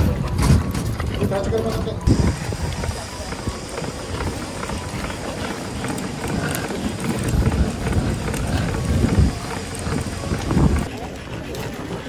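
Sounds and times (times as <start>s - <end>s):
stroller wheels rolling on asphalt: 0.0s - 12.0s.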